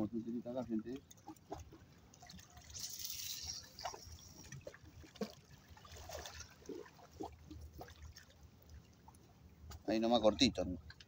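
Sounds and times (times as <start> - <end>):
river waves lapping: 1.1 - 9.5.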